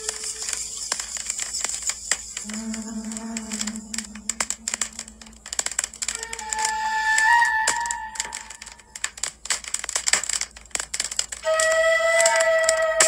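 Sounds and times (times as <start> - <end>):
acoustic guitar playing: 2.4 - 5.3.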